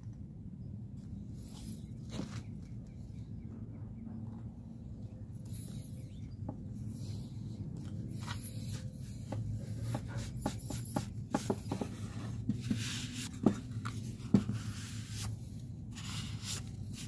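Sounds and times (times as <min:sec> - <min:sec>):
wood rubbing: 0:08.2 - 0:15.3.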